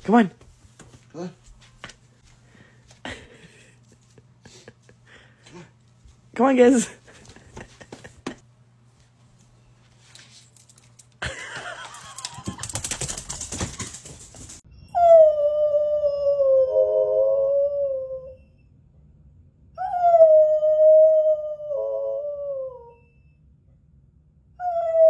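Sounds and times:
dog howling: 14.9 - 18.4.

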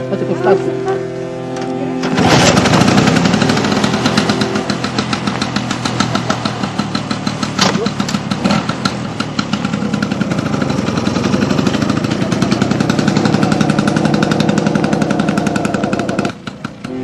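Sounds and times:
motor scooter engine: 0.0 - 17.0.

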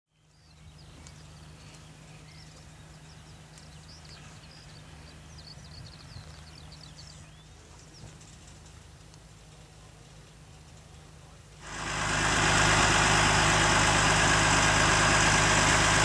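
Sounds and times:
small birds chirping: 0.1 - 11.9
harvester machine humming: 11.6 - 16.0.

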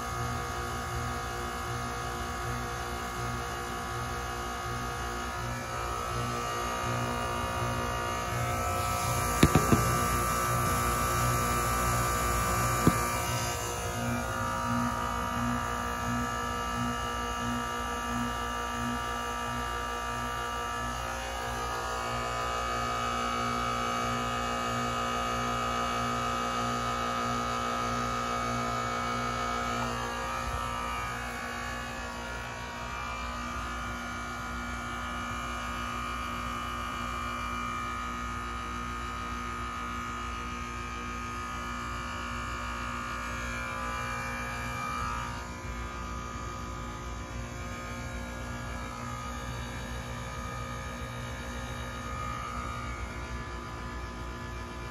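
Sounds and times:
compressor electrical hum: 0.0 - 54.9
whining tones: 5.4 - 19.0.

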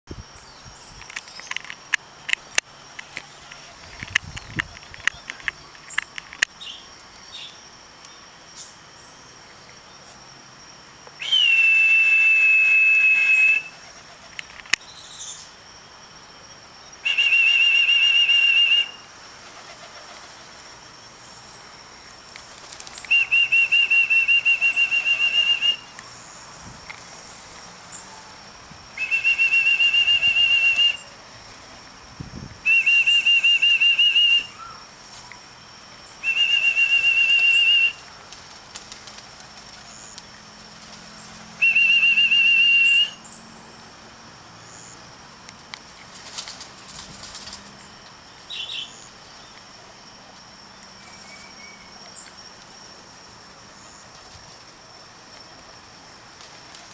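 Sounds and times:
trilling whistle blasts: 11.2 - 13.8, 17.0 - 19.1, 23.1 - 26.0, 28.9 - 31.2, 32.6 - 34.9, 36.1 - 38.1, 41.6 - 43.4.

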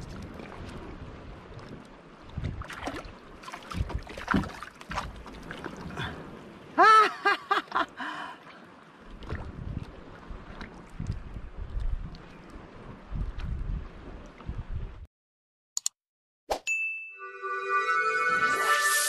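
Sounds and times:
water splashing: 0.0 - 6.7, 7.6 - 14.4
knocks against wooden hull: 3.7 - 5.2.

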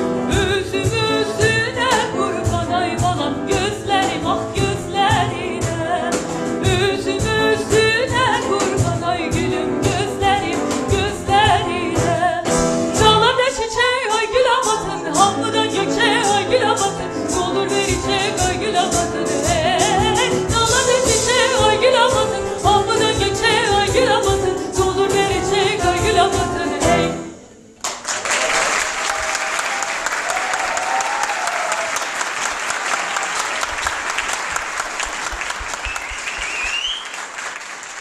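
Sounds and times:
percussion: 0.0 - 27.3
piano: 0.0 - 38.0
woman singing: 0.1 - 27.5
audience applause: 27.8 - 38.0.

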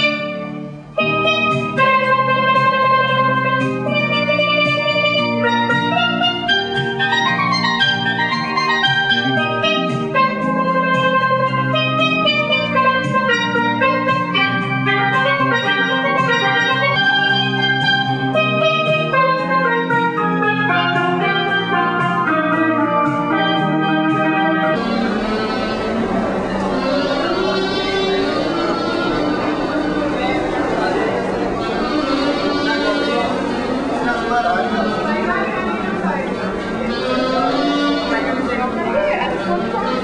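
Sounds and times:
steelpan played with sticks: 0.0 - 40.0.

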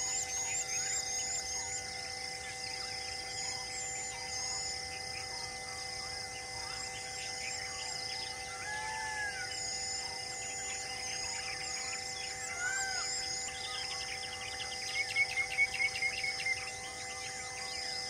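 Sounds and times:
high insect drone: 0.0 - 18.0
birds chirping and whistling: 6.6 - 18.0.

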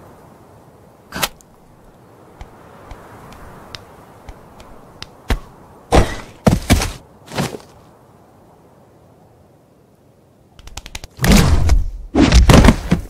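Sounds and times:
faint clicks: 10.6 - 11.2
dull thuds: 11.2 - 13.0.

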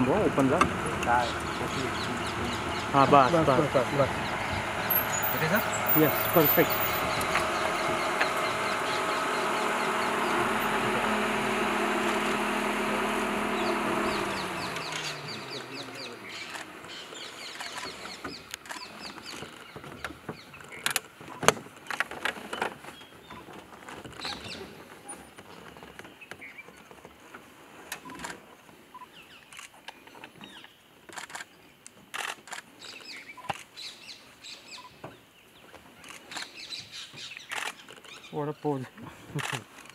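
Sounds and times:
vehicle engine idling: 0.0 - 26.5
birds chirping: 0.0 - 27.4, 28.0 - 39.9
sharp clicks: 16.4 - 16.7, 31.1 - 33.7, 37.4 - 38.2, 39.4 - 39.9.

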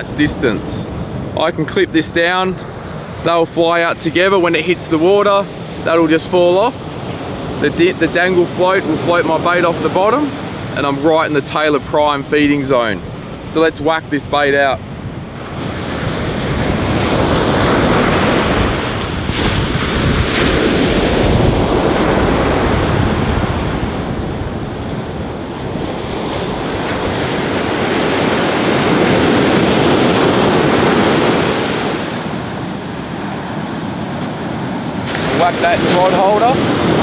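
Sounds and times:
wind buffeting microphone: 14.8 - 37.0
surf breaking on beach: 15.4 - 37.0.

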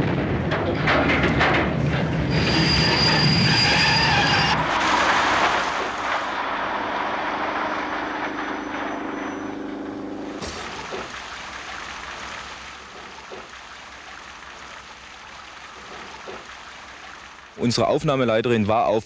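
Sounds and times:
steam train running: 0.0 - 13.5
wheels squealing on rails: 2.1 - 10.8
low held tone: 4.6 - 10.8.

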